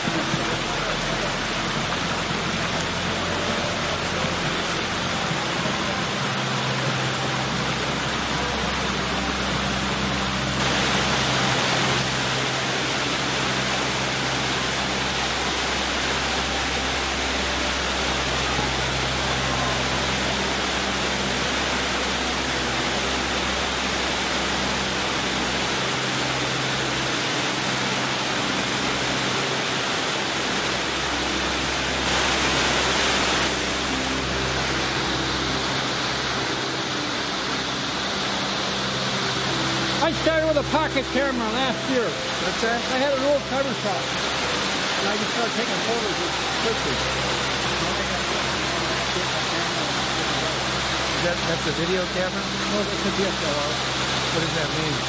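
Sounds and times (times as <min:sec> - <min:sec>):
fountain water splashing: 0:00.0 - 0:55.0.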